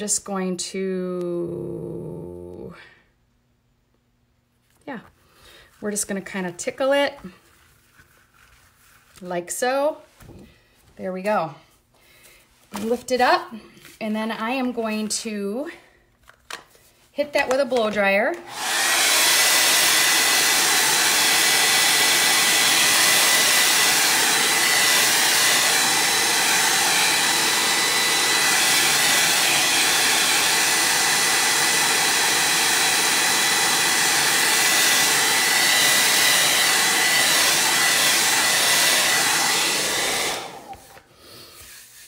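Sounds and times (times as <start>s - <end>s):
hair dryer blowing: 17.4s - 41.7s.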